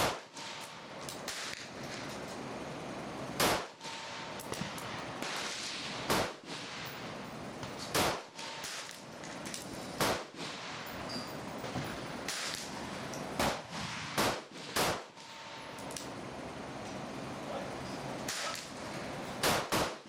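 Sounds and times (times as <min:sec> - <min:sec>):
rifle shots: 0:00.0 - 0:01.8, 0:03.4 - 0:07.1, 0:07.8 - 0:09.1, 0:10.0 - 0:10.9, 0:12.3 - 0:12.8, 0:13.4 - 0:15.6, 0:18.3 - 0:18.8, 0:19.4 - 0:20.0.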